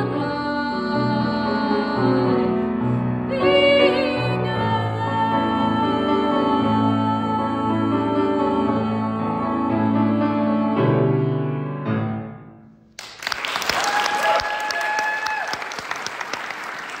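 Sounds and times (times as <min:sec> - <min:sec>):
soprano singing: 0:00.0 - 0:11.6
grand piano chords: 0:00.0 - 0:13.0
audience applause: 0:13.0 - 0:17.0
person cheering: 0:13.7 - 0:15.8.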